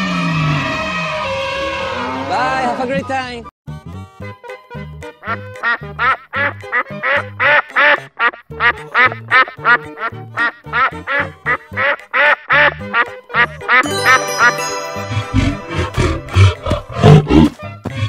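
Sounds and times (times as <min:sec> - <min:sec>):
cartoon duck quacking: 0:05.2 - 0:14.1.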